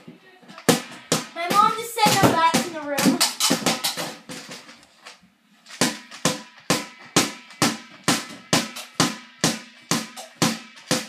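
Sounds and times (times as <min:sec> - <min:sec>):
stick thwacking exercise ball: 0:00.6 - 0:04.1, 0:05.8 - 0:11.0.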